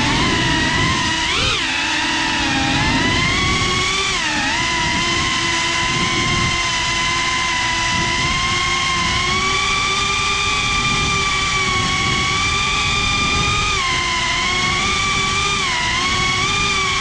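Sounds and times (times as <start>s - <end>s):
drone motors whining: 0.0s - 17.0s.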